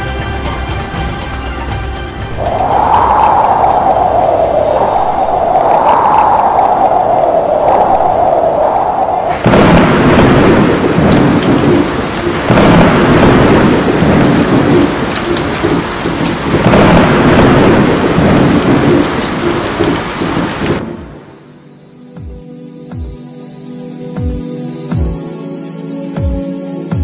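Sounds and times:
heavy rain: 0.0 - 21.5
thunder crashes rumbling: 2.3 - 21.4.

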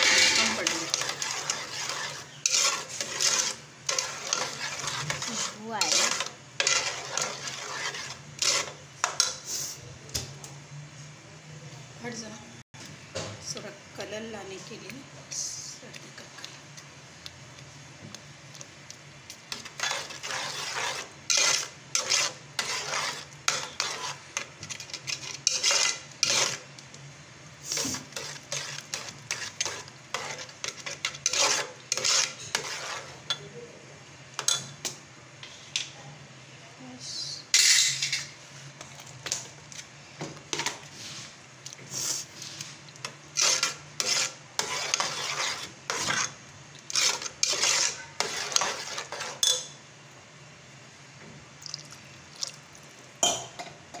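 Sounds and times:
spoon scraping a metal pot: 0.0 - 9.4, 19.5 - 26.7, 27.7 - 33.5, 43.3 - 49.8.

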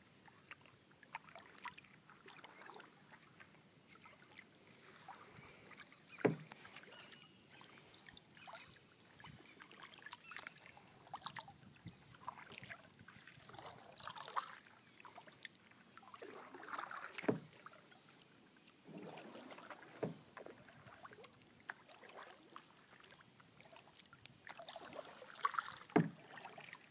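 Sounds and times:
kayak paddles splashing in water: 0.0 - 26.9.

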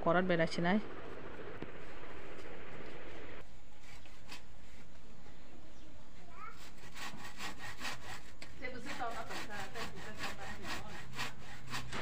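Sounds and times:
hand saw cutting wood: 3.8 - 5.0, 6.5 - 12.0.

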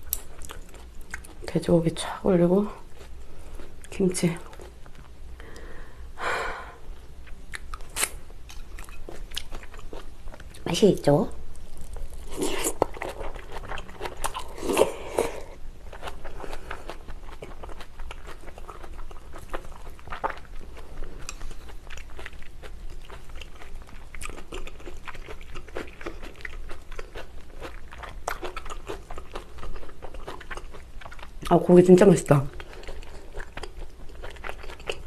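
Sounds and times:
wet chewing with crunches: 0.0 - 1.6, 7.2 - 10.7, 11.5 - 31.8, 32.5 - 35.0.

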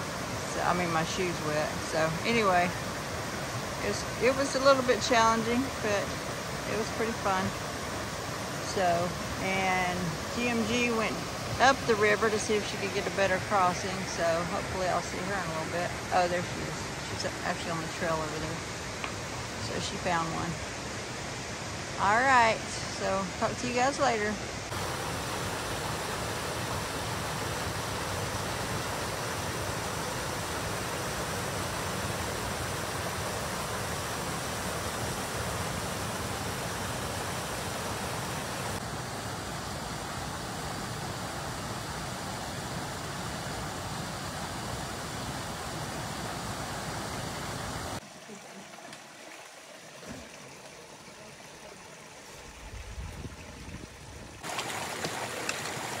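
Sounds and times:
brook rushing over rocks: 48.0 - 56.0.

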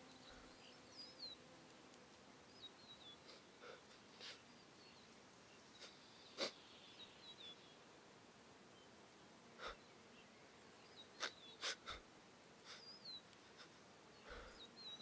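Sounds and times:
faint high bird chirps: 2.5 - 7.8.

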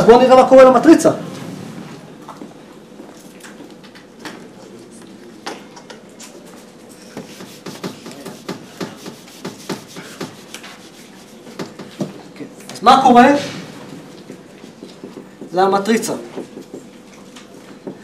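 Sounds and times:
eraser rubbing on whiteboard: 7.0 - 11.8.

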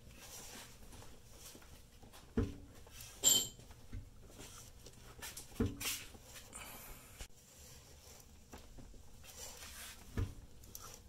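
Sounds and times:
ringing metal clink: 3.2 - 3.6.

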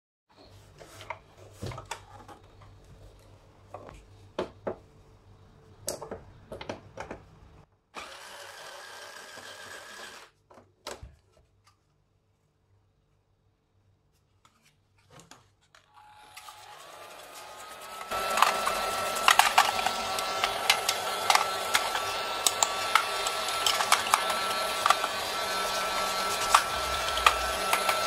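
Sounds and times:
electric screwdriver whirring: 8.0 - 10.3, 16.0 - 28.0.

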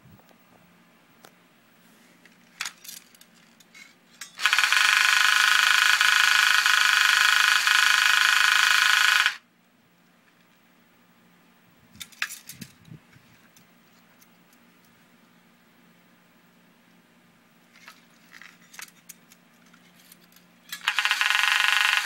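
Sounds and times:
toy space gun buzzing: 4.2 - 9.4, 20.7 - 22.0.

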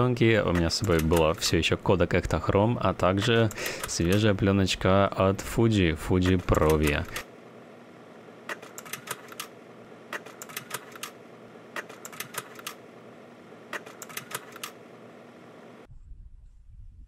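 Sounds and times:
steady hum: 0.0 - 15.9
sharp mechanical clicks: 0.4 - 1.5, 3.1 - 4.4, 6.2 - 7.3, 8.4 - 12.9, 13.7 - 14.8.

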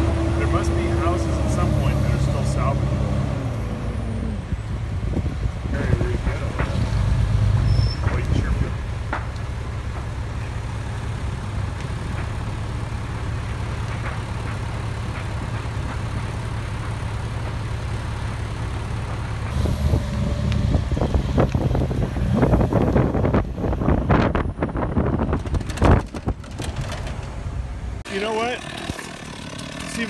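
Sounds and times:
diesel engine rumbling: 0.0 - 30.0
irregular knocks and crackling: 6.1 - 10.7, 11.4 - 19.6, 25.2 - 27.5.

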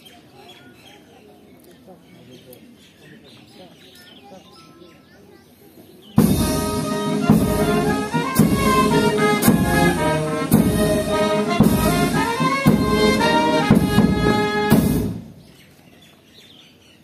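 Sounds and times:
slow brass band music: 6.2 - 15.4.

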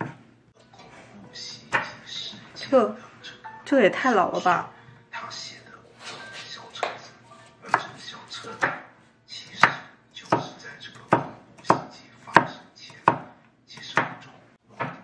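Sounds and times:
knife chopping on cutting board: 1.7 - 2.0, 7.7 - 15.0.

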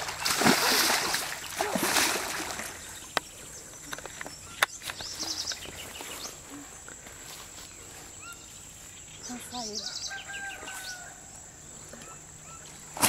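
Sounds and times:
fish thrashing in water: 0.0 - 3.1
high insect whine: 0.0 - 13.0
bird chirps: 2.6 - 6.4, 7.7 - 11.1.

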